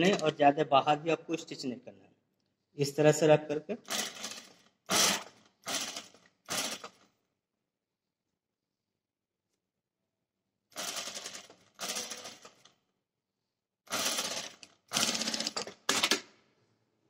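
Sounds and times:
sewing machine stitching: 0:03.8 - 0:07.1, 0:10.7 - 0:12.7, 0:13.9 - 0:16.2.

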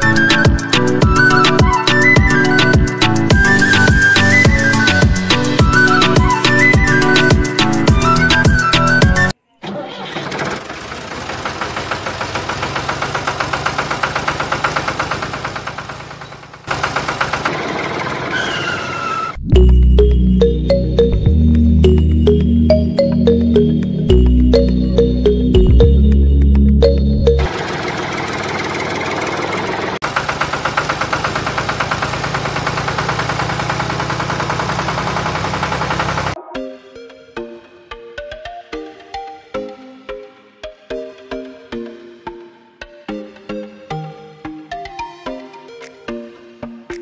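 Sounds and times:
tractor engine idling: 0:09.8 - 0:19.0, 0:26.8 - 0:36.4.

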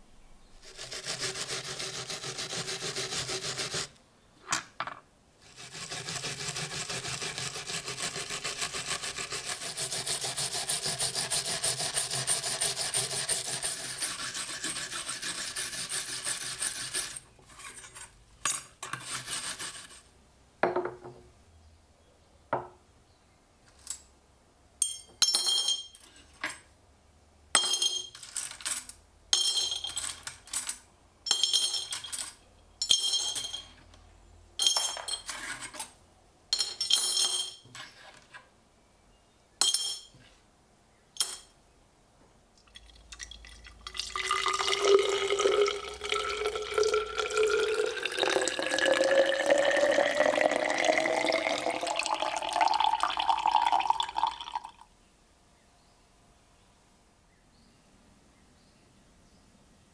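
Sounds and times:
wire brush scrubbing metal: 0:00.6 - 0:03.9, 0:05.4 - 0:18.1
metal parts clinking into glass jar: 0:24.8 - 0:26.7, 0:27.6 - 0:33.9, 0:34.6 - 0:37.9, 0:39.6 - 0:40.2, 0:41.2 - 0:41.6.

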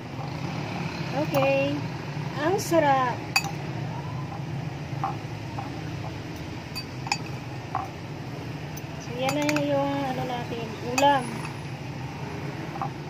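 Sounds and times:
cutlery clinking on ceramic plate: 0:09.3 - 0:09.7.

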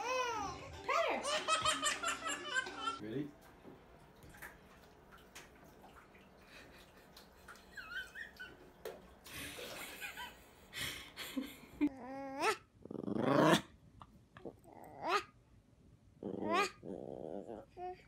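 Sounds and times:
water splashing into bathtub: 0:03.1 - 0:11.1
dog whining: 0:16.4 - 0:18.0.

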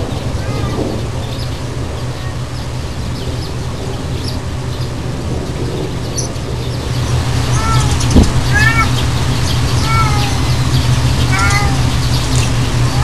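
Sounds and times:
low rumble: 0:00.0 - 0:13.0
faint bird chirps: 0:06.0 - 0:13.0.

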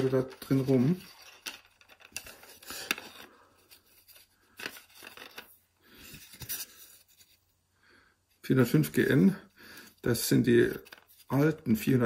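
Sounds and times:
cardboard rustling and scraping: 0:00.0 - 0:07.4.

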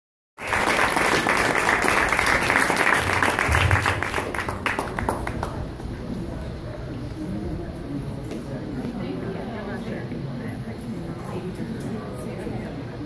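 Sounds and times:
audience applauding: 0:00.4 - 0:05.8.

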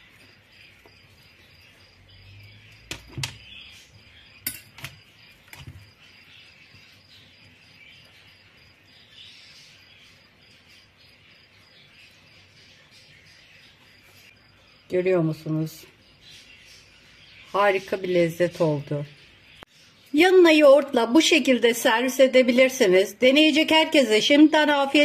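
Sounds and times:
knife clinking on metal tray: 0:04.4 - 0:04.9.

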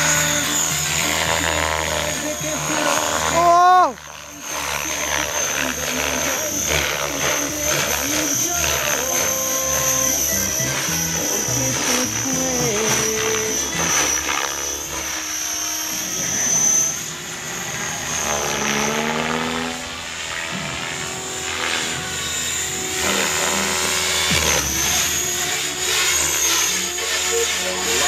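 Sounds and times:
model helicopter rotor whine: 0:00.0 - 0:28.0.

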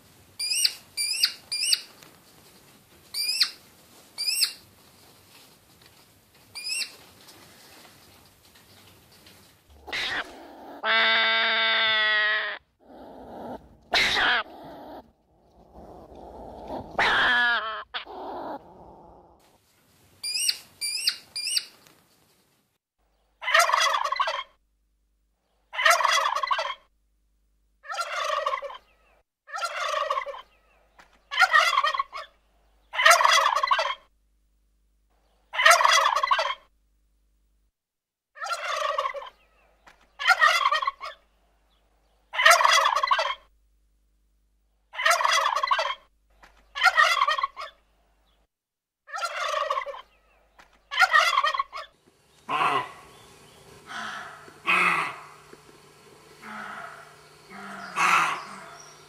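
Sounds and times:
short animal call: 0:52.4 - 0:55.7, 0:56.3 - 0:59.0.

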